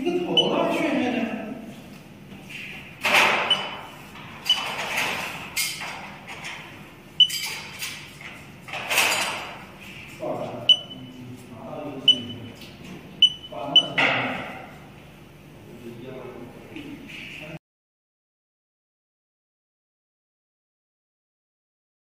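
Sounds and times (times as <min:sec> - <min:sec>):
short high beeps: 0:03.5 - 0:04.7, 0:07.2 - 0:07.4, 0:10.7 - 0:11.2, 0:12.1 - 0:12.6, 0:13.2 - 0:14.0.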